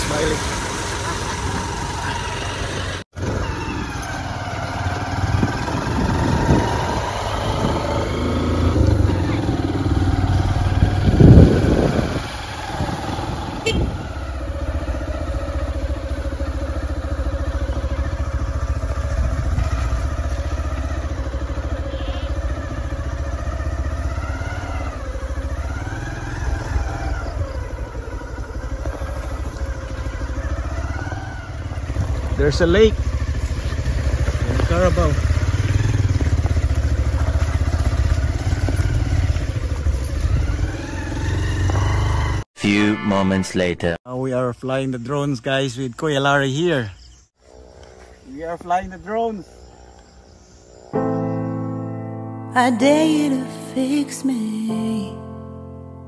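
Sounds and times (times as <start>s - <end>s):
motorcycle engine running: 0.0s - 42.5s
wind buffeting microphone: 5.1s - 14.2s.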